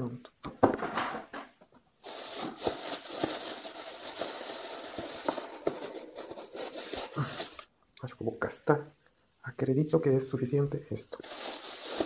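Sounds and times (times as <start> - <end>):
scraping and rustling handling noise: 0.9 - 7.7, 11.2 - 12.0.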